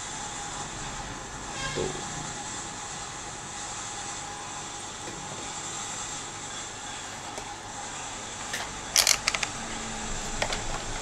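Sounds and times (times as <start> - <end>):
small parts and tweezers clicking: 8.6 - 9.6.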